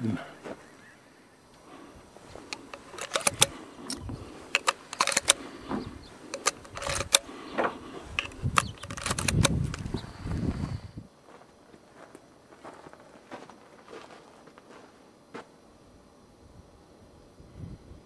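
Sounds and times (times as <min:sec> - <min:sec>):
handling rustle: 0:01.6 - 0:10.2
metallic clicks of cartridges loading: 0:02.3 - 0:07.3, 0:08.1 - 0:10.0.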